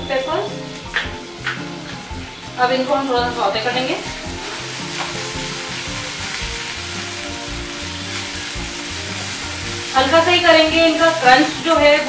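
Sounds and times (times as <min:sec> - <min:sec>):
soft background music: 0:00.0 - 0:12.0
vegetables sizzling in a frying pan: 0:00.0 - 0:12.0
spatula stirring in a pan: 0:04.0 - 0:11.7.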